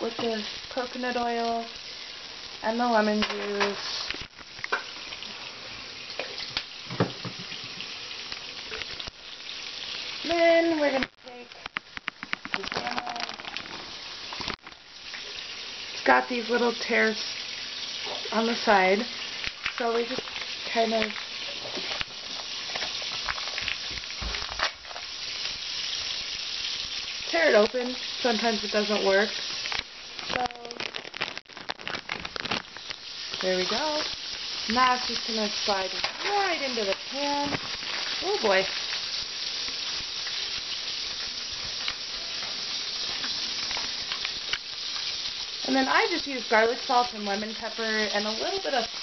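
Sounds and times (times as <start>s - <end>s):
oil sizzling in a frying pan: 0.0s - 49.0s
plastic packaging crinkling: 11.4s - 15.3s, 19.3s - 26.3s, 28.8s - 46.2s.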